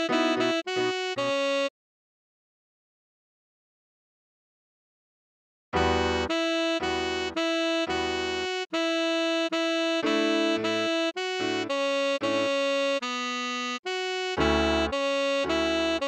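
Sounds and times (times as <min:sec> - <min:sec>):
keyboard chords: 0:00.0 - 0:01.7, 0:05.8 - 0:16.0
tenor saxophone melody: 0:00.0 - 0:01.7, 0:05.8 - 0:16.0.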